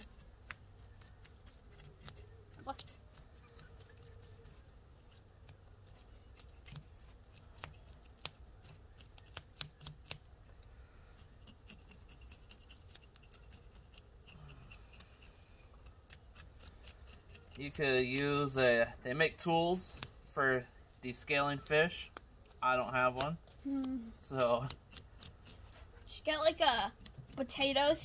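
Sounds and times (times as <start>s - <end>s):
scraping fish scales: 10.8s - 26.2s.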